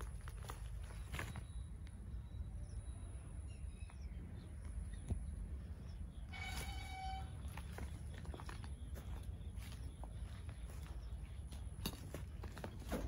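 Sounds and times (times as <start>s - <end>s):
vehicle horn: 6.3s - 7.5s
footsteps: 6.3s - 13.0s.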